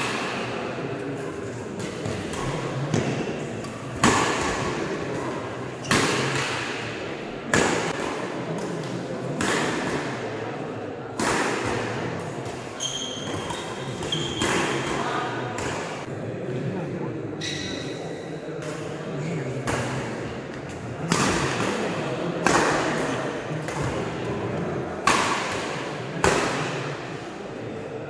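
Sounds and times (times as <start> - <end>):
shoe squeak: 12.8 - 14.4, 17.4 - 18.3.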